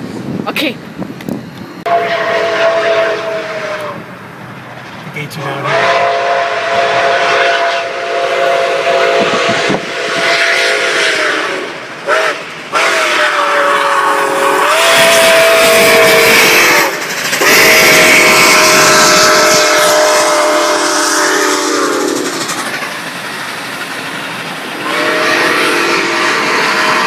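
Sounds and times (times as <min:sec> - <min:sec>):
train noise: 0:00.0 - 0:27.0
steam locomotive chime whistle: 0:01.8 - 0:04.0, 0:05.5 - 0:22.4, 0:24.8 - 0:27.0
steam hiss: 0:05.4 - 0:27.0.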